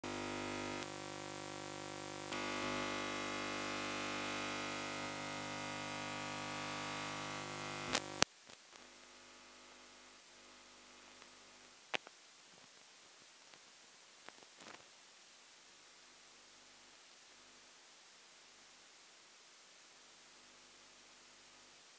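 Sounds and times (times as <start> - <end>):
electrical hum and buzz: 0.0 - 12.7.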